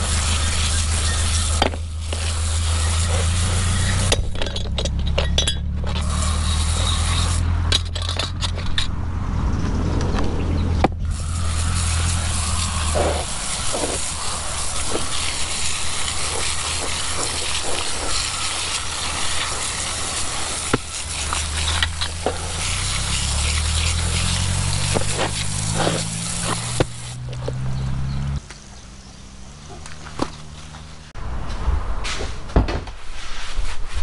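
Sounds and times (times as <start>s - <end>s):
steady spraying hiss: 0.0s - 4.3s, 6.0s - 7.5s, 11.0s - 27.7s
low motor hum: 0.0s - 31.9s.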